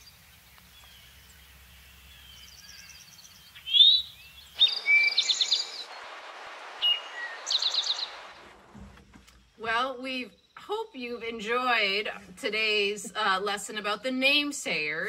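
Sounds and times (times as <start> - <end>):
background hiss: 0.0 - 15.0
bird call: 0.7 - 8.5
bird song ending in trill: 2.1 - 6.0, 6.8 - 8.2.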